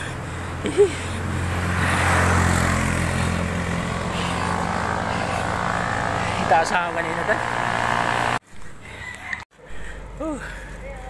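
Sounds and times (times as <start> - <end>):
motorcycle engine droning past: 1.4 - 8.4.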